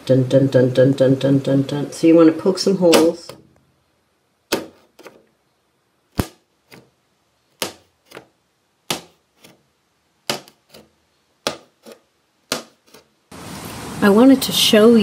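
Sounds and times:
skewer popping plastic wrap: 6.1 - 6.9.

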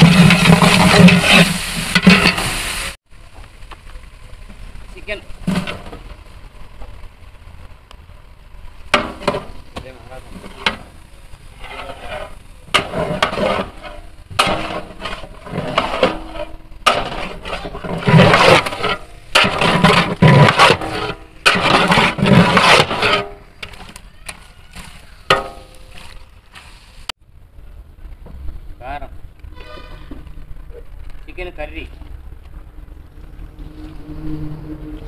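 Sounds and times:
ladle scraping a cooking pot: 0.0 - 2.6, 11.5 - 23.9.

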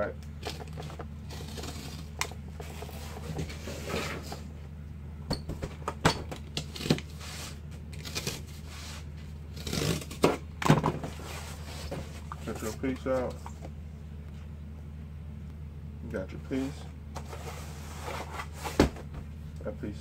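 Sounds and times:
low hum: 0.0 - 20.0
cardboard being cut: 6.6 - 10.4.

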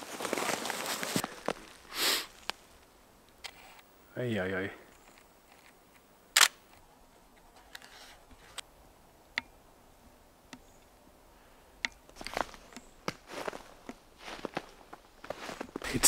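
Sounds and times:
soft scuffle: 0.0 - 1.8
camera shutter release: 6.4 - 6.6.

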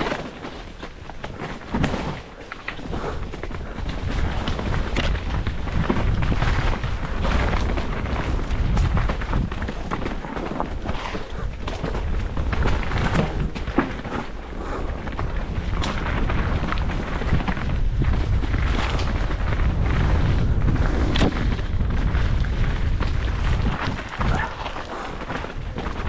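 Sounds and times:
bike rattling clicks and knocks: 0.0 - 26.0
wind buffeting microphone: 1.0 - 26.0
tyres on dirt and leaves: 6.0 - 26.0.

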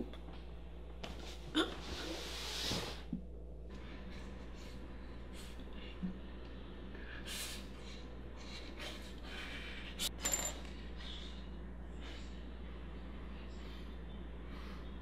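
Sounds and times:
low room hum: 0.0 - 15.0
soft breathing: 10.7 - 15.0.

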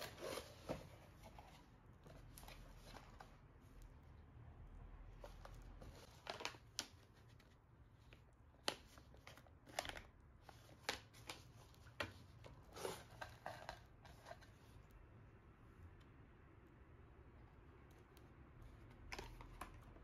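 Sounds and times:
cardboard box and paper rustling: 0.0 - 3.4, 5.2 - 7.6, 8.6 - 14.6.

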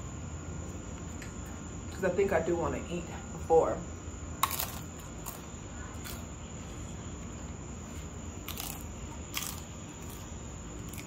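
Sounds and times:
mouth crunching fried food: 4.4 - 6.3, 7.9 - 11.0.

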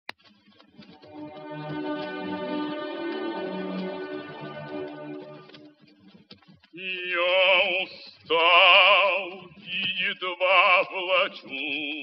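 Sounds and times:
operatic baritone singing: 6.8 - 12.0.

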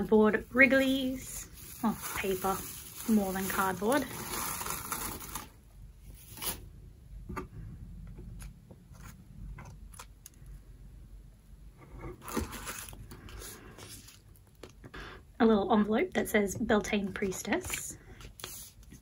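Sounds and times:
shredded paper rustling: 0.2 - 6.6, 12.2 - 14.4.

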